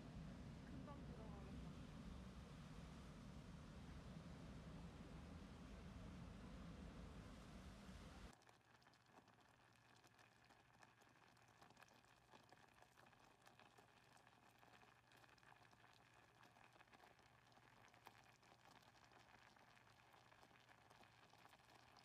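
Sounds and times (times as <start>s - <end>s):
jam bubbling and popping: 8.3s - 22.0s.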